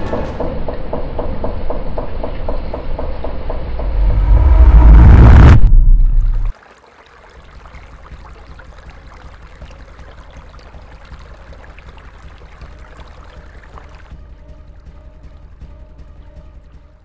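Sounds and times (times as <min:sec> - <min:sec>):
low pulsing rumble: 0:03.7 - 0:06.5
stream trickling over rocks: 0:06.0 - 0:14.2
small water ticks: 0:06.5 - 0:14.2.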